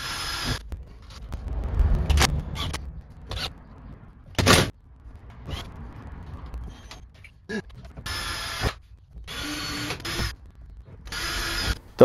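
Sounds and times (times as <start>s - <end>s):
cordless drill running: 11.1s - 11.8s.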